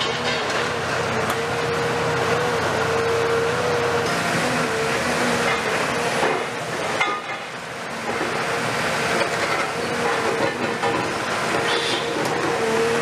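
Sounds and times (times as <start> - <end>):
excavator engine and hydraulics: 0.0 - 13.0.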